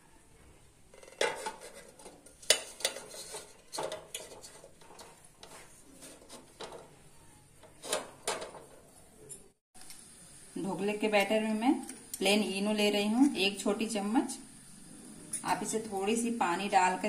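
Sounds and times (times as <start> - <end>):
light metal scraping: 0.9 - 6.8.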